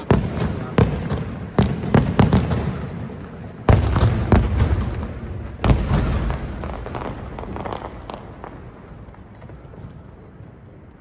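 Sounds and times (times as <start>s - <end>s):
small firework pops: 5.6s - 10.6s.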